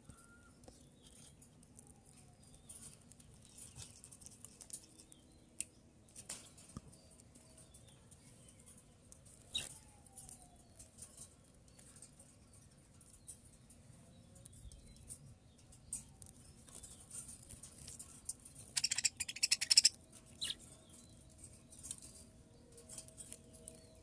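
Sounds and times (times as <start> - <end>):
budgerigars chirping and whistling: 18.7 - 20.7.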